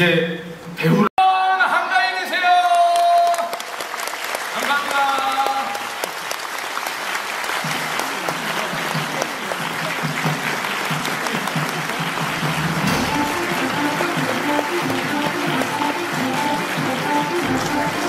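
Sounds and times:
audience applauding: 0:02.6 - 0:18.0
music: 0:08.8 - 0:18.0.

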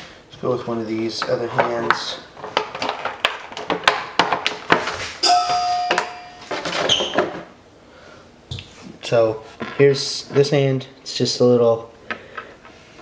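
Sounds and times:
steady high tone: 0:05.2 - 0:06.9.

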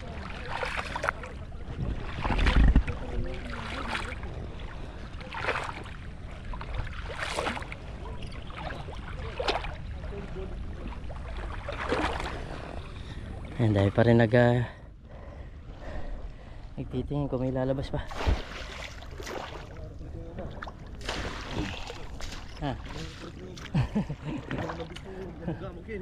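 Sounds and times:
water and mud splashing: 0:00.0 - 0:14.6, 0:17.3 - 0:26.0
wind rumble on microphone: 0:01.0 - 0:13.5.

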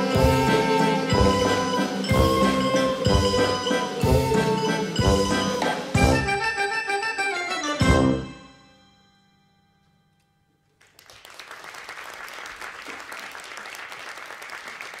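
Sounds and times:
audience applause: 0:10.8 - 0:15.0.

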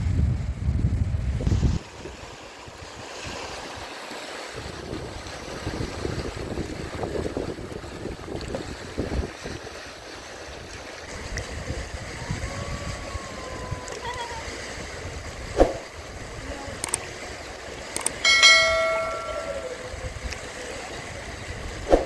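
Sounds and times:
short ringing tone: 0:18.2 - 0:20.0.

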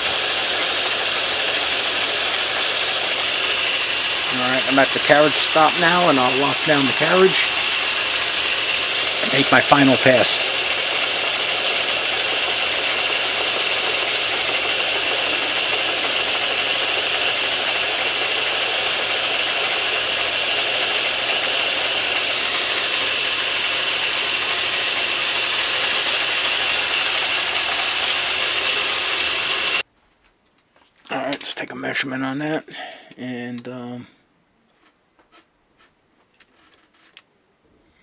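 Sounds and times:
metal lathe whining: 0:00.0 - 0:29.8.

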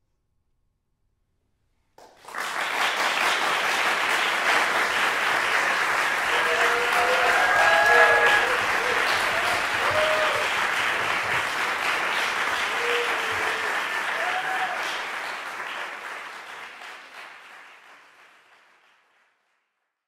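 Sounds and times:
audience applauding: 0:02.0 - 0:19.7
short calls from audience: 0:03.2 - 0:15.7.

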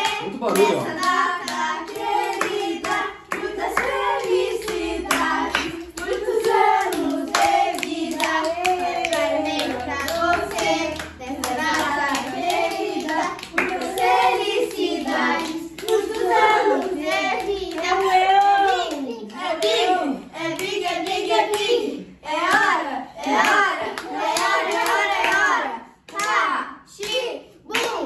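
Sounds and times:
hands clapping: 0:00.0 - 0:19.9, 0:22.4 - 0:26.4, 0:27.0 - 0:28.0
children singing: 0:00.0 - 0:28.0.

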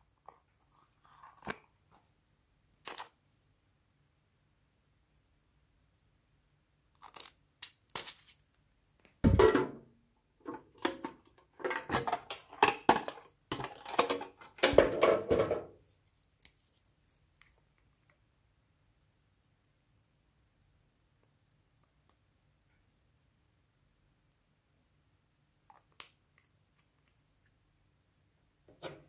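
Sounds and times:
metal tin box handling: 0:10.4 - 0:15.7.

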